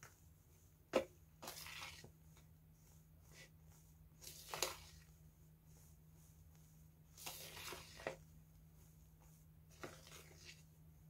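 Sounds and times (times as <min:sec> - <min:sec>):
spatula scraping bowl: 0:01.4 - 0:02.2, 0:04.2 - 0:05.1, 0:07.2 - 0:08.3, 0:09.7 - 0:10.7.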